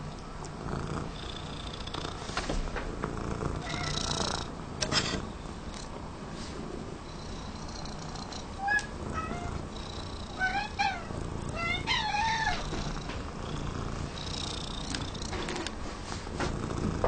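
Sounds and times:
cat purring: 0:00.4 - 0:04.5, 0:07.0 - 0:15.7, 0:16.4 - 0:17.0
cat meowing and chirping: 0:03.6 - 0:04.1, 0:08.5 - 0:09.6, 0:10.3 - 0:12.7.

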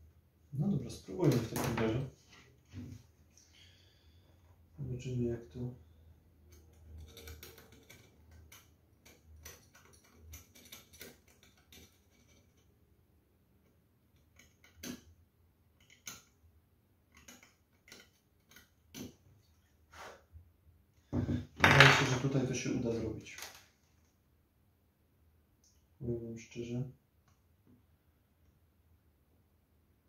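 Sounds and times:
small metallic clicks and taps: 0:13.6 - 0:15.1, 0:15.8 - 0:16.4, 0:17.1 - 0:19.2.

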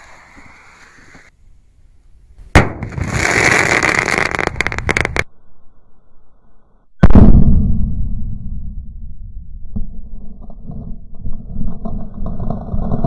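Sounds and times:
firecracker blasts: 0:02.5 - 0:05.3
sharp cracks: 0:02.6 - 0:05.3
low rumble: 0:05.2 - 0:13.0.

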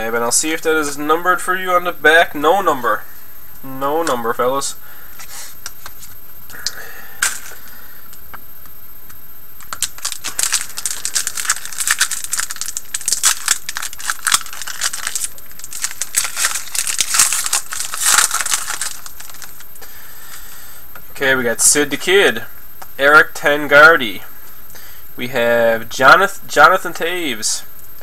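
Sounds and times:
cards rustling: 0:09.6 - 0:20.4
wrapper crinkling: 0:09.6 - 0:20.4.

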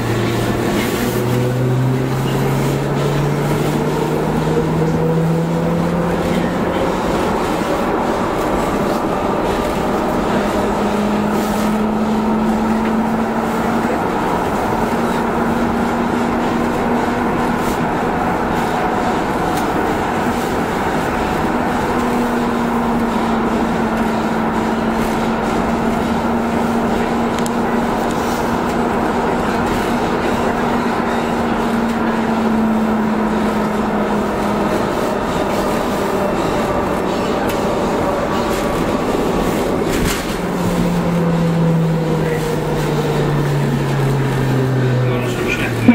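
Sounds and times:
train hum: 0:00.0 - 0:45.9
train wheels rumbling on rail: 0:00.0 - 0:45.9.

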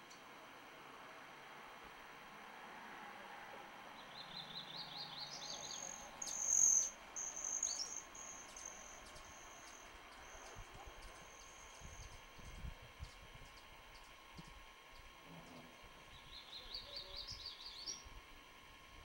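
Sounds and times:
birds chirping: 0:04.0 - 0:12.2, 0:16.1 - 0:18.1
high thin bird trill: 0:05.2 - 0:12.2.

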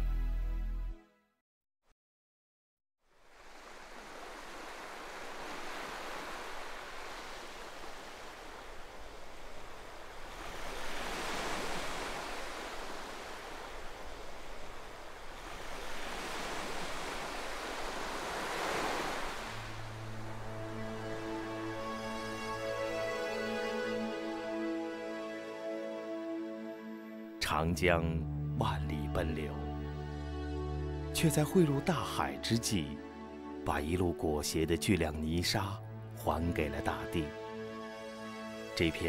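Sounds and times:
music: 0:00.0 - 0:01.4, 0:19.6 - 0:39.0
waves washing: 0:03.2 - 0:26.8.

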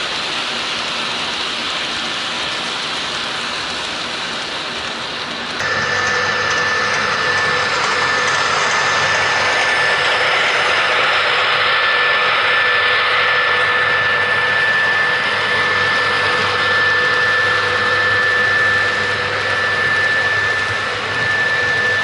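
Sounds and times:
model train mechanical hum: 0:00.0 - 0:22.0
thin steady whine: 0:01.6 - 0:22.0.

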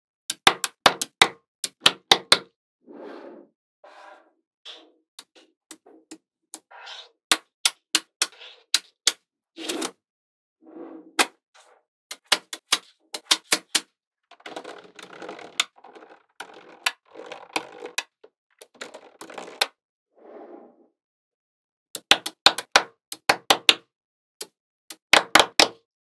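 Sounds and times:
magnetic balls clicking together: 0:12.1 - 0:19.7
magnetic balls rattling: 0:14.3 - 0:19.6.

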